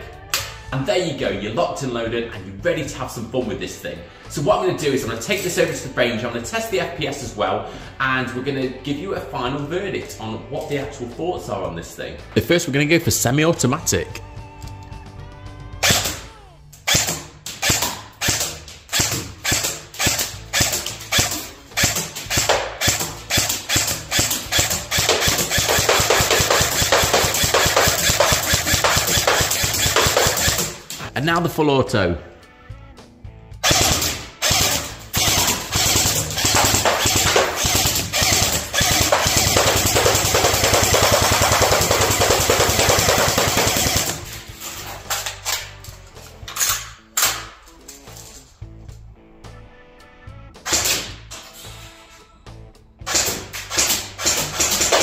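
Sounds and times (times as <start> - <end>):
airsoft rifle firing rapid pops: 16.9 - 31.0, 33.6 - 44.4, 53.1 - 55.0.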